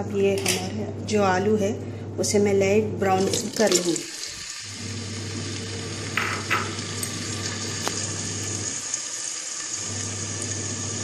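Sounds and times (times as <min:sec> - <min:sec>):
potatoes sizzling in oil: 0:03.5 - 0:11.0.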